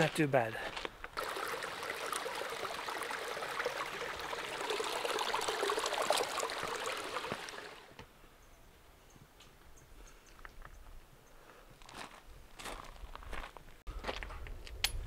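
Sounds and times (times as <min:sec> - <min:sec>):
footsteps on stones: 0:00.0 - 0:01.2, 0:11.8 - 0:14.8
creek splashing over rocks: 0:01.2 - 0:08.0.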